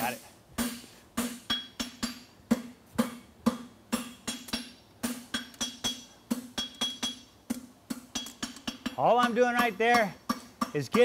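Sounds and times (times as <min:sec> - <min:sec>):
anvil ringing: 0:00.6 - 0:07.4
hammer striking hot metal on anvil: 0:00.6 - 0:11.0.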